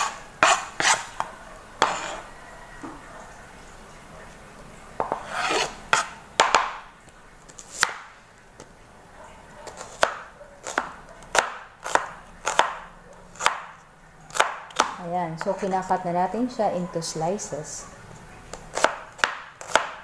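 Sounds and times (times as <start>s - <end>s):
knife chopping on cutting board: 0.0s - 1.1s, 1.8s - 2.2s, 5.0s - 6.8s, 7.5s - 8.0s, 9.6s - 12.8s, 13.4s - 13.7s, 18.5s - 20.0s.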